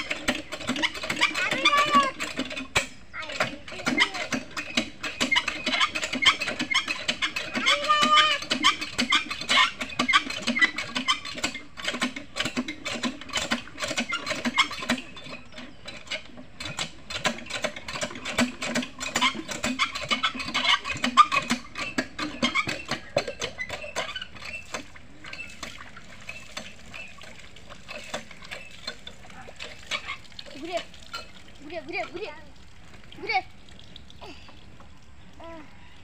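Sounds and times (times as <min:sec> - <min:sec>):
hand pump clanking: 0:00.0 - 0:35.6
pump squeaks: 0:00.0 - 0:36.0
water splashing: 0:18.6 - 0:36.0.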